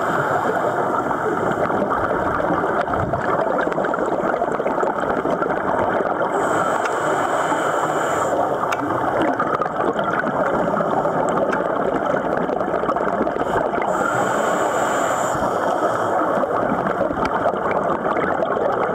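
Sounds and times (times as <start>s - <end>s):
underwater bubbles gurgling: 0.0s - 18.9s
scuba regulator hiss: 6.3s - 8.6s, 13.9s - 16.4s.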